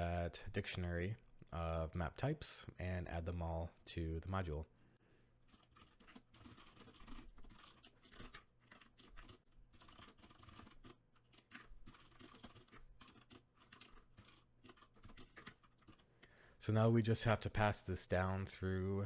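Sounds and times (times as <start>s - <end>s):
faint keyboard typing: 5.5s - 16.6s.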